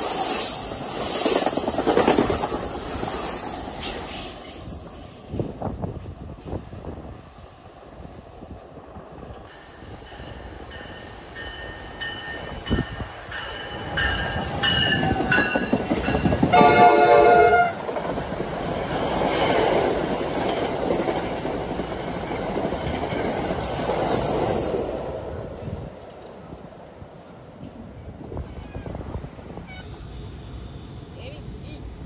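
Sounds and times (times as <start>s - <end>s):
train wheels rumbling past: 0.0s - 32.0s
train horn chord: 16.5s - 17.8s.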